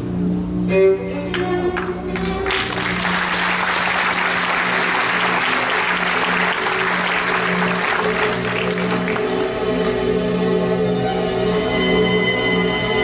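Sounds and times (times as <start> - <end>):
audience applause: 1.8 - 10.4.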